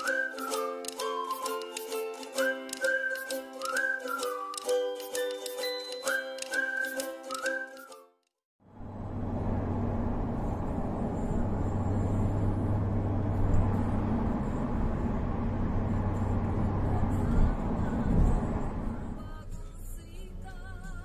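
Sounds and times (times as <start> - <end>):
low engine hum: 8.6 - 21.0.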